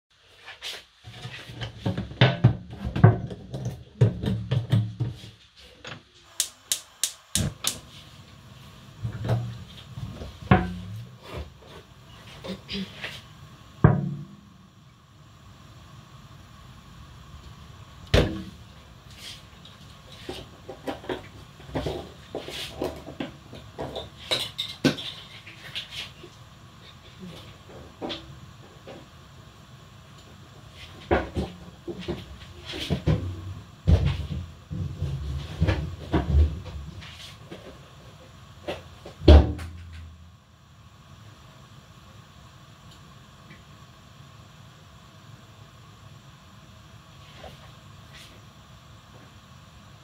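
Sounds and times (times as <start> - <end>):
pots and utensils clattering: 20.2 - 26.2.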